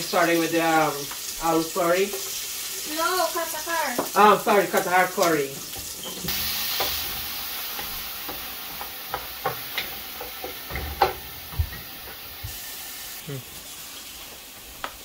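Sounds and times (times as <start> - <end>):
oil sizzling in a pan: 0.0 - 15.0
utensils clicking and tapping: 7.8 - 12.2.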